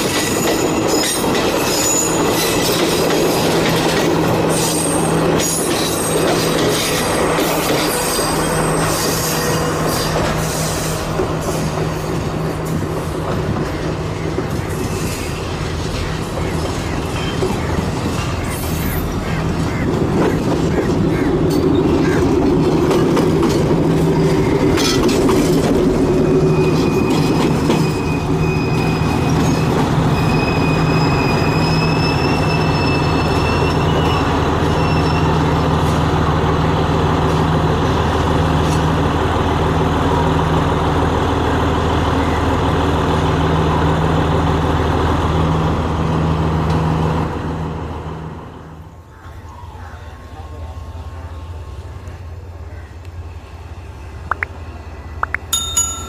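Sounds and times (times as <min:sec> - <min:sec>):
locomotive engine droning: 0:00.0 - 0:56.0
high wheel squeal: 0:00.1 - 0:02.8, 0:04.3 - 0:12.2, 0:14.5 - 0:19.4, 0:26.1 - 0:35.9
wheels clicking over rail joints: 0:19.9 - 0:28.2.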